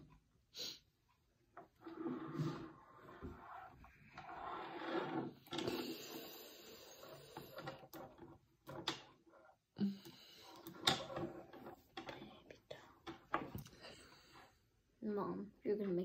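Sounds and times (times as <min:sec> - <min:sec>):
wooden blocks clicking and knocking: 0:07.0 - 0:09.3, 0:09.9 - 0:13.8.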